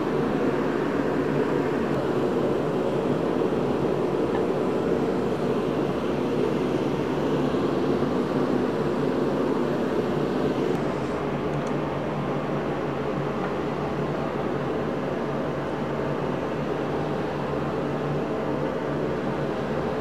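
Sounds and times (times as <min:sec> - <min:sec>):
heater whooshing hum: 0:00.0 - 0:20.0.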